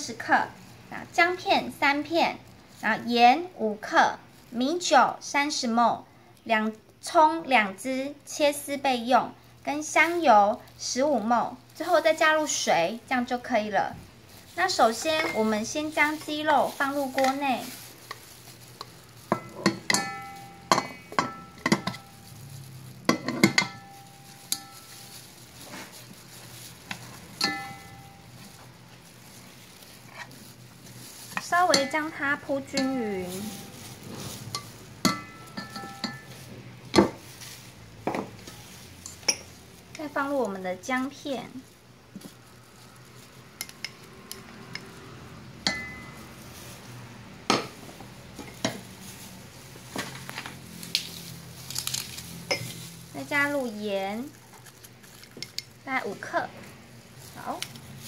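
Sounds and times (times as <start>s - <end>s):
tongs clinking against metal pot: 14.7s - 16.4s, 19.3s - 22.2s, 23.1s - 25.2s, 27.4s - 28.4s, 31.4s - 33.8s, 34.5s - 36.4s, 38.5s - 40.1s, 45.6s - 46.2s
kitchenware clinks and knocks: 19.3s - 22.2s, 23.1s - 24.8s, 27.4s - 28.2s, 34.6s - 36.3s.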